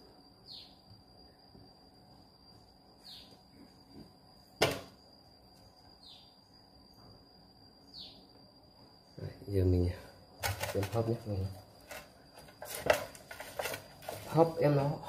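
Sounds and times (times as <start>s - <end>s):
faint high whine: 0.0s - 15.0s
bird chirping: 0.4s - 0.8s, 3.0s - 3.4s, 6.0s - 6.6s, 7.8s - 8.4s.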